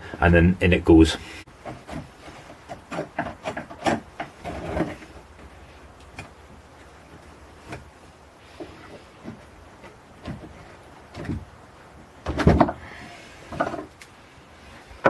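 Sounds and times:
small knocks of loose wood: 1.6s - 6.4s, 7.1s - 11.5s, 12.2s - 14.1s.

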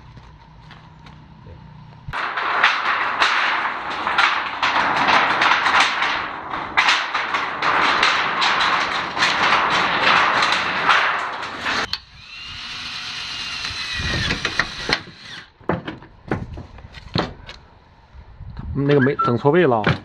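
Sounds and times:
sheet metal crackling and scraping: 2.1s - 17.6s
cordless drill whining: 11.9s - 15.4s.

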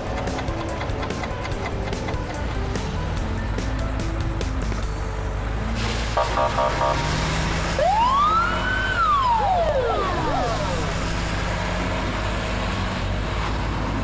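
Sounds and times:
siren wailing: 6.2s - 11.4s.

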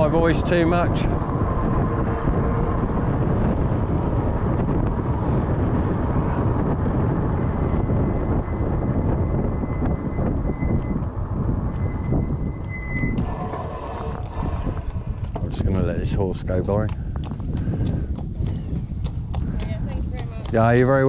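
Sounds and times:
wind buffeting microphone: 0.0s - 21.0s
thin high squeal: 8.5s - 15.1s.

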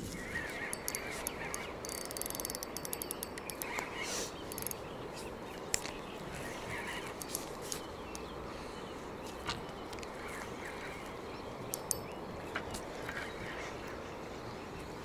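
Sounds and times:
fishing reel clicking: 0.6s - 4.8s.

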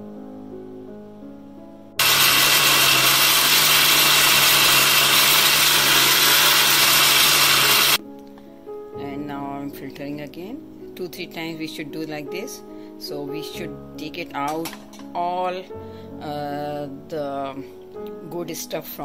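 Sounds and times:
soft piano music: 0.0s - 2.0s, 8.0s - 19.0s
blender running: 2.0s - 8.0s.

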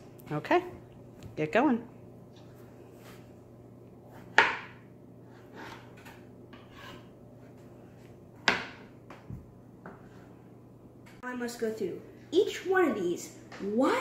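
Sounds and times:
knife chopping on cutting board: 4.1s - 4.8s.

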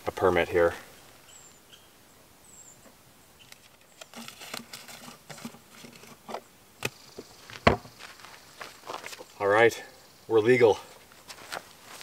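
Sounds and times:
paper rustling and scratching: 3.5s - 6.2s.

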